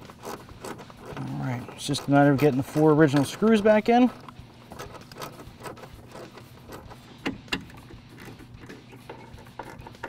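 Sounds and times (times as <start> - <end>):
hands clicking and tapping screw: 4.2 - 10.0.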